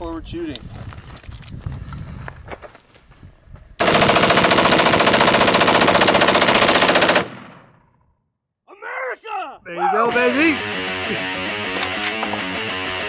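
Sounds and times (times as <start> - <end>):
rapid rifle shots: 3.8 - 7.7.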